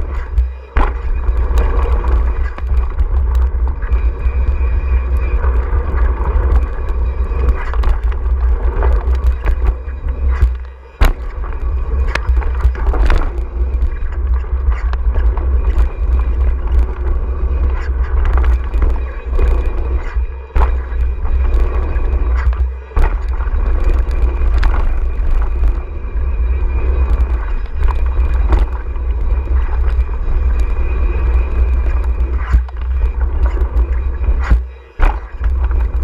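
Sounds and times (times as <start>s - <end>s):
bike knocks and rattles: 0.0s - 4.0s, 7.4s - 17.0s, 17.6s - 25.8s, 31.9s - 36.0s
tyre roar on dirt: 0.0s - 26.0s
wind rumble on microphone: 0.0s - 36.0s.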